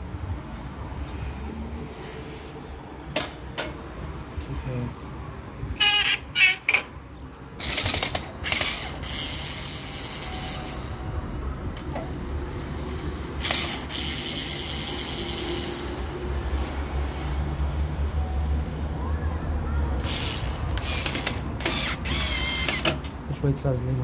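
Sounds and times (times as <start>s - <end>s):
cordless screwdriver whirring: 7.6s - 11.0s, 13.4s - 15.9s, 20.0s - 23.0s.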